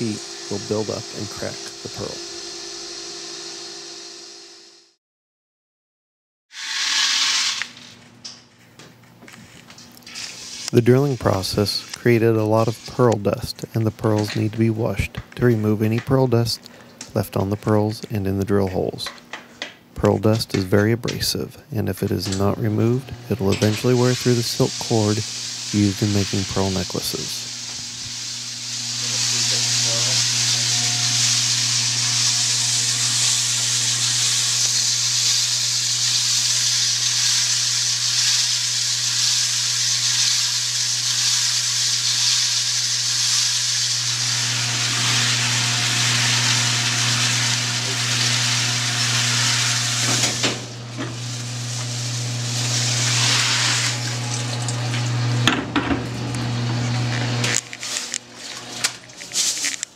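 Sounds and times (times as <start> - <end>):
tap water running through hoses: 22.2 - 59.9.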